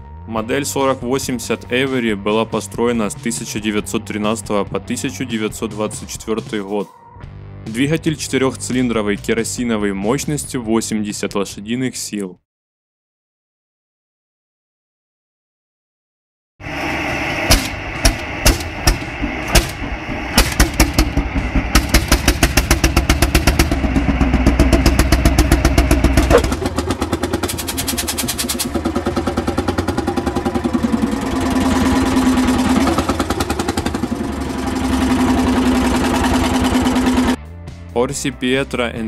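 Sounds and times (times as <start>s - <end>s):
engine hum rising and falling: 16.6s - 37.5s
single-cylinder engine beating: 16.7s - 37.4s.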